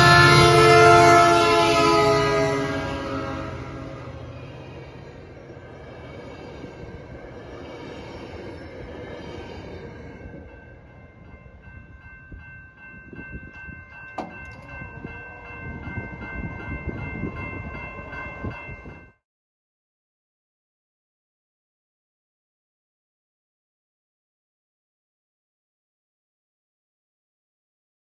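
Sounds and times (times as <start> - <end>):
crossing warning bell ringing: 0.0 - 19.2
passenger train rolling past: 0.0 - 19.2.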